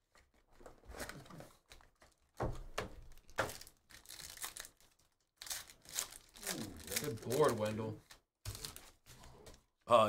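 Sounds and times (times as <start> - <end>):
foil packs crinkling and tearing: 3.0 - 9.3.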